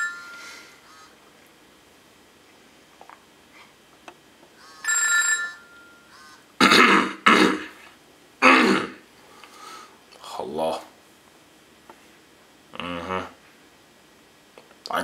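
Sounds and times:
phone ringing electronic tone: 0.0 - 0.7, 4.6 - 6.4.

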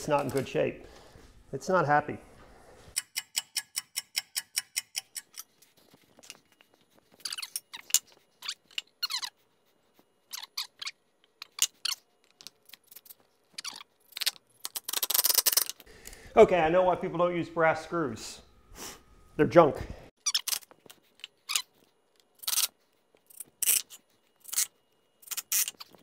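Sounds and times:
screws clicking and rattling: 3.0 - 6.4, 10.3 - 15.9, 22.2 - 22.7, 23.3 - 26.0.

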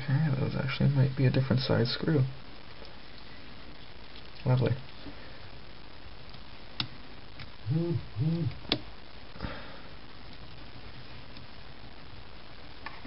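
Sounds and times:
background hiss: 0.0 - 13.0
person humming: 7.6 - 8.8.

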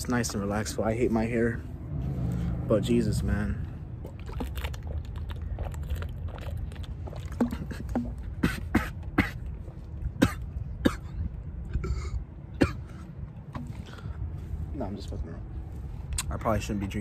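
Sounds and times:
low rumble: 0.8 - 8.4
person gulping water: 3.9 - 10.9.

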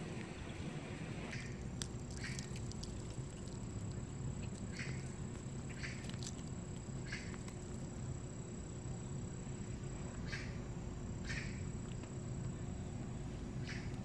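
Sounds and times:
low background rumble: 0.0 - 14.0
cat tongue rasping on fur: 1.3 - 8.1.

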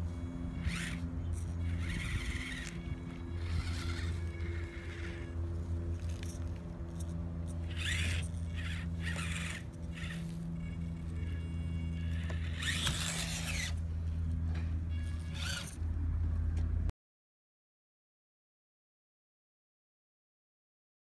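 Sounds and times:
tiny motor and gears whining: 0.0 - 16.7
steady low hum: 0.0 - 16.9.

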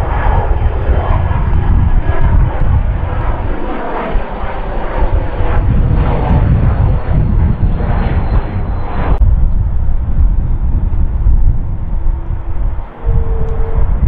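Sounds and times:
jet engines passing overhead: 0.0 - 14.0
faint high whine: 7.2 - 14.0.

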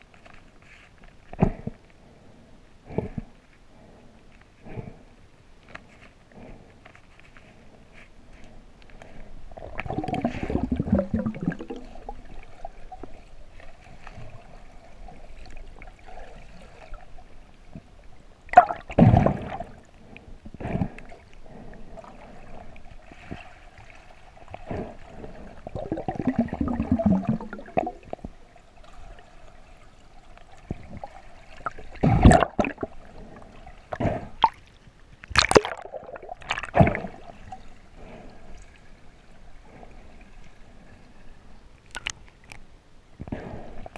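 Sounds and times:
faint steady hum: 0.0 - 43.9
water gurgling underwater: 9.6 - 13.1, 18.5 - 19.8, 25.5 - 28.4, 30.7 - 33.2, 35.3 - 37.5.

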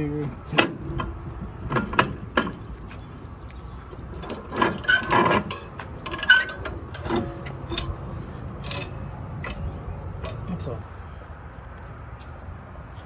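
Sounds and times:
metal knocks and scraping: 0.3 - 10.5.

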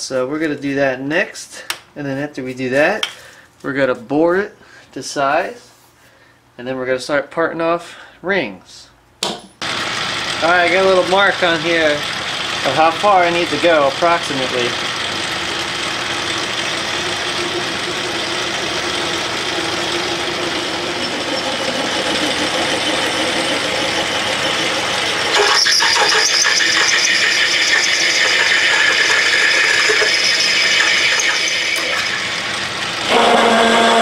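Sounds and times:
lathe drilling cast iron: 9.6 - 34.0
rough high cutting noise: 9.7 - 34.0.

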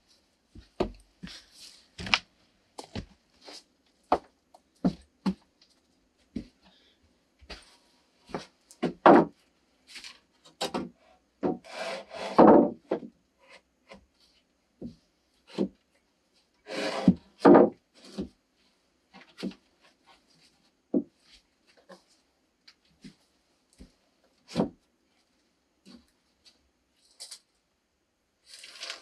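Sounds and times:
wooden boards knocking: 8.8 - 9.3, 12.2 - 13.1, 17.4 - 17.8
boards scraping: 11.4 - 12.8, 16.6 - 18.3.

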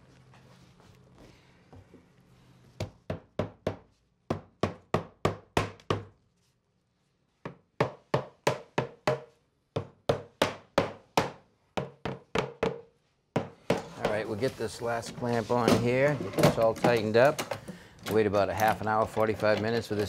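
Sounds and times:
mallet knocking on wood: 7.5 - 12.8.

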